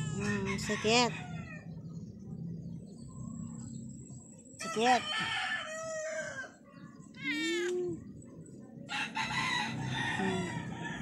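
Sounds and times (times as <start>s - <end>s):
roosters crowing: 0.0s - 1.8s, 4.6s - 6.6s, 8.9s - 11.0s.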